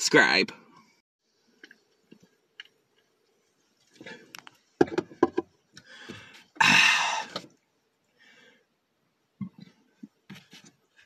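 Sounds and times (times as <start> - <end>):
man exhaling breathily: 5.9 - 7.4.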